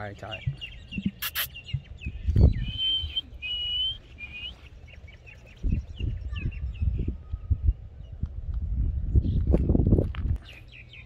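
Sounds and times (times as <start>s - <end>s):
small birds chirping: 0.0s - 11.0s
bird whistling: 0.4s - 4.7s.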